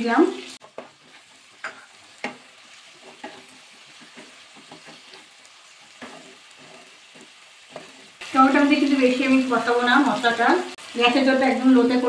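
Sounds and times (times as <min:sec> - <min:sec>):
sizzle of frying in oil: 0:00.0 - 0:12.0
wooden spatula scraping pan: 0:00.6 - 0:08.2.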